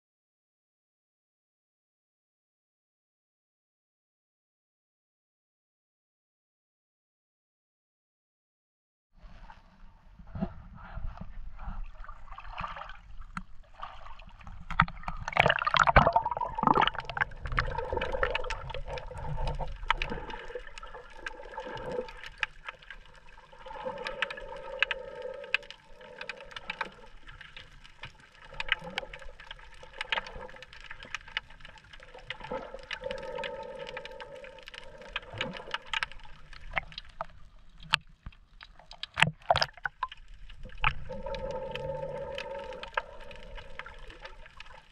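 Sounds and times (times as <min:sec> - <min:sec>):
hollow underwater hum: 0:09.2 - 0:44.9
muffled underwater sloshing and bubbling: 0:09.2 - 0:44.9
sharp clicks and crackles: 0:14.4 - 0:44.9.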